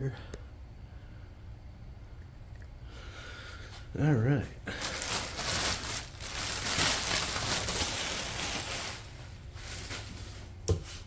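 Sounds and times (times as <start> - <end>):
plastic bag rustling: 4.7 - 10.6.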